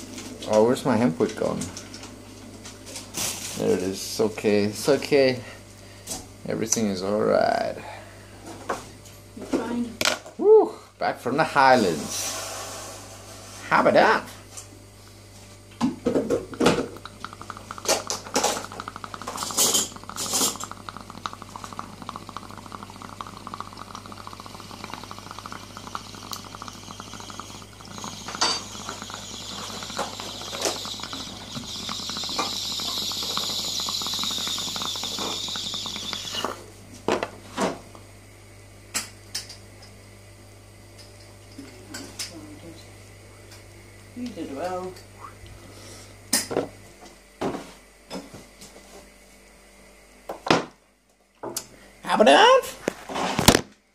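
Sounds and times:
water pipe bubbling: 16.3 - 36.9.

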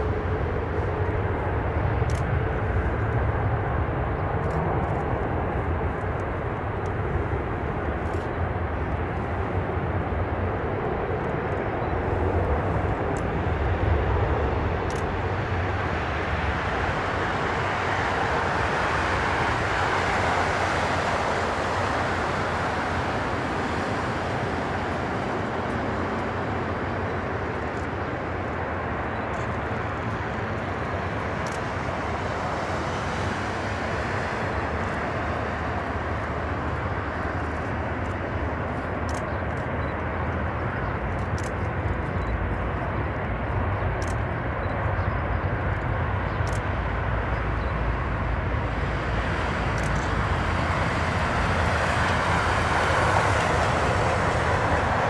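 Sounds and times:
jet engines of taxiing airliner: 0.0 - 55.0.

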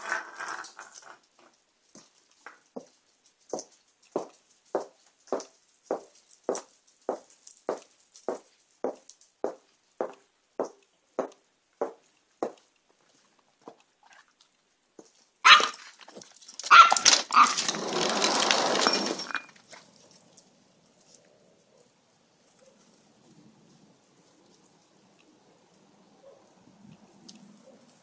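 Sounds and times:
small dog barking: 15.4 - 15.8, 16.7 - 17.6, 26.2 - 26.6
door clattering open: 16.9 - 19.6.

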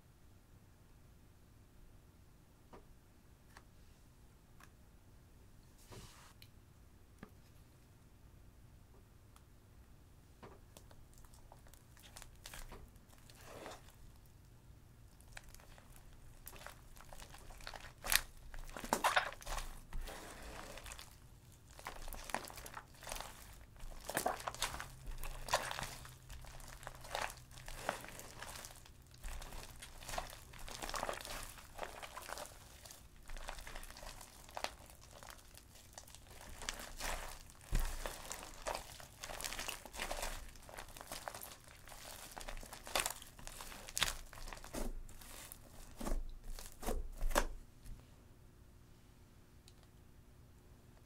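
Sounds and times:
slime squishing and crackling: 10.8 - 14.4, 15.1 - 47.7.

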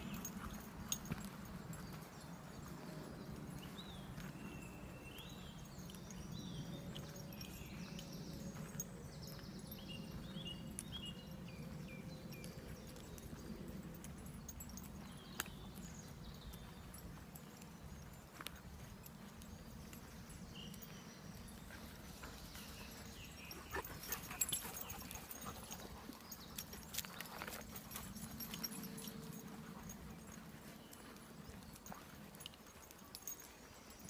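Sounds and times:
birds chirping: 0.0 - 34.0
footsteps on dirt path: 0.2 - 5.6, 13.9 - 34.0.

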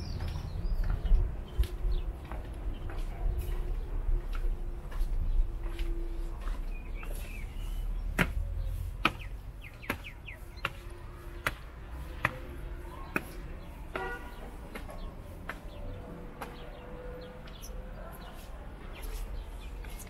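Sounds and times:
footsteps on stone: 0.0 - 16.8
birds chirping: 0.0 - 20.0.

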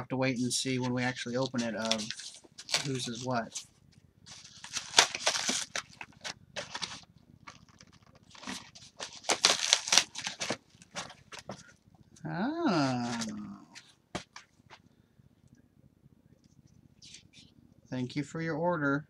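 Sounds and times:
paper rustling: 0.8 - 3.7, 4.3 - 11.7, 12.8 - 14.5
cardboard crackling and rustling: 0.8 - 11.8, 12.8 - 14.8.

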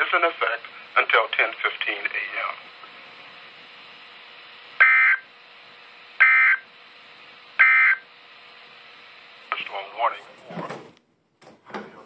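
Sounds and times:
faint radio hiss: 0.0 - 12.0
buzzing data squawks: 4.8 - 5.3, 6.2 - 6.7, 7.6 - 8.1.

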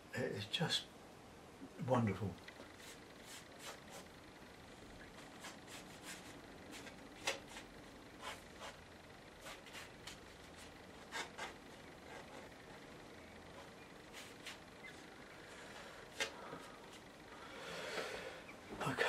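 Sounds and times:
brush strokes on paper: 2.6 - 4.1, 5.1 - 8.8, 13.5 - 17.1.

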